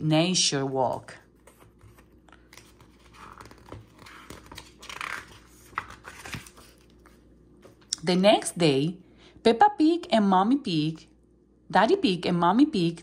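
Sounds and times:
paper pages rustling: 0.8 - 7.9.

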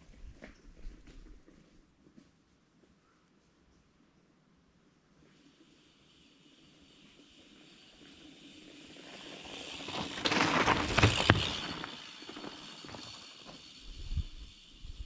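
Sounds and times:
bike tyres rolling over dirt and leaves: 5.4 - 15.0.

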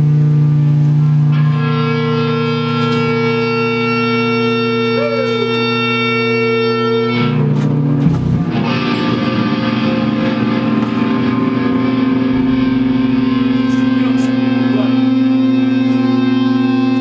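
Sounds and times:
distorted electric guitar chord: 0.0 - 17.0
sharp hit: 8.0 - 15.4.

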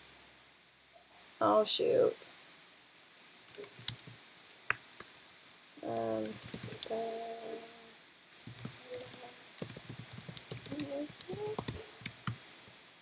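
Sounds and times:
typing on computer keyboard: 3.2 - 6.9, 8.4 - 12.5.

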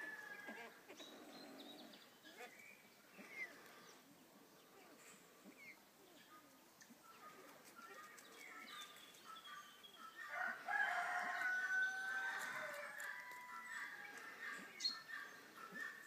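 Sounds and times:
rooster crowing: 10.3 - 13.9.

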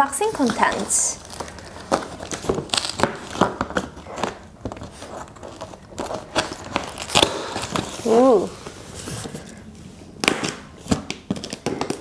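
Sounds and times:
scissors cutting packing tape: 0.4 - 8.2, 10.2 - 12.0.

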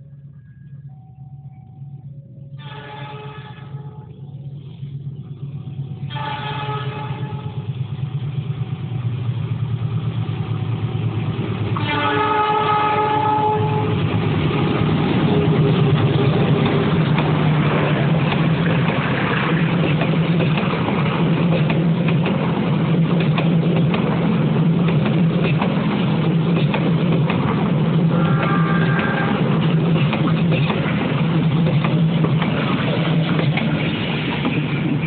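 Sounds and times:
low engine rumble: 0.0 - 35.0
train passing close by: 0.0 - 35.0
locomotive horn: 2.5 - 4.3, 6.0 - 7.7, 11.8 - 14.1, 28.1 - 29.7.

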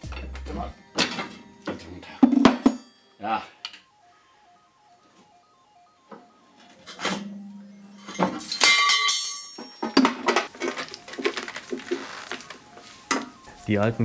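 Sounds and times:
faint music: 0.0 - 14.0
metal suspension parts clanking: 8.0 - 10.8.

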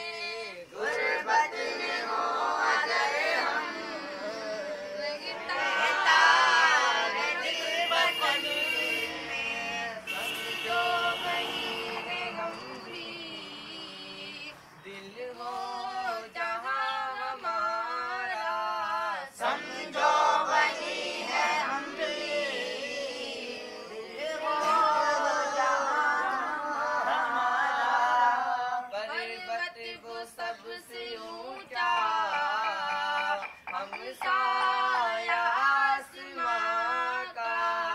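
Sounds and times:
young voices singing together: 0.0 - 37.9.

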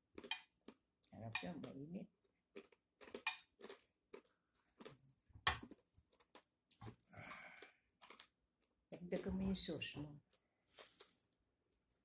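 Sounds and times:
chewing crunchy pork skin: 0.0 - 9.3.

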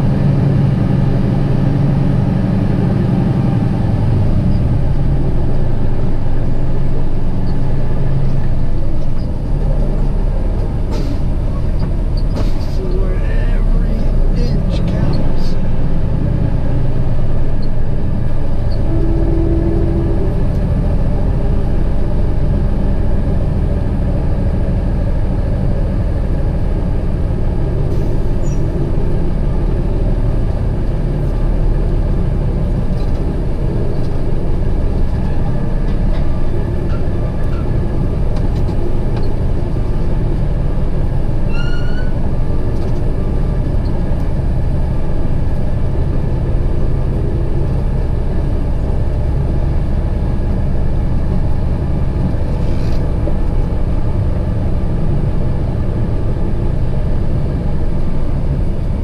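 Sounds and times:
diesel truck engine running: 0.0 - 59.0
brief rising squeal: 41.5 - 42.2.

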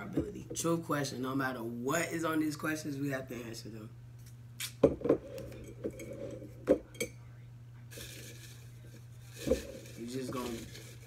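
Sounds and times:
paper rustling: 8.0 - 11.0.

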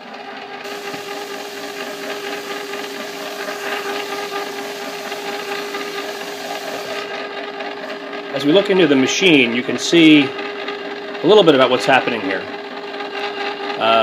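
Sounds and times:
ice cream maker motor humming: 0.0 - 8.8.

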